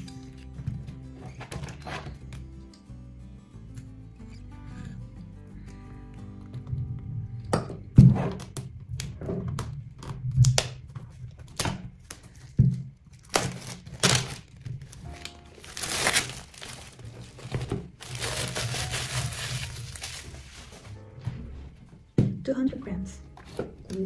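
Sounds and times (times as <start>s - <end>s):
background music: 0.0s - 10.9s, 12.8s - 24.0s
plastic shrink wrap crinkling: 10.0s - 21.0s.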